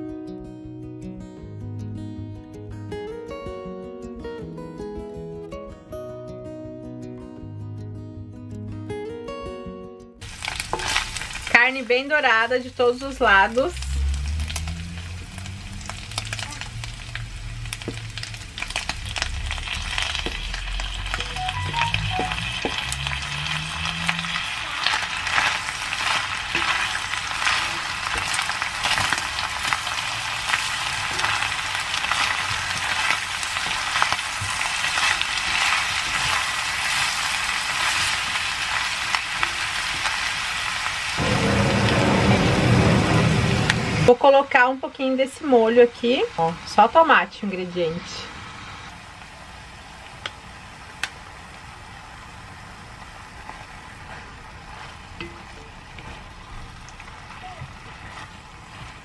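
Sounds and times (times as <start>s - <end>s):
meat sizzling in a pot: 10.2s - 47.3s
spoon stirring and knocking pot: 55.2s - 55.8s.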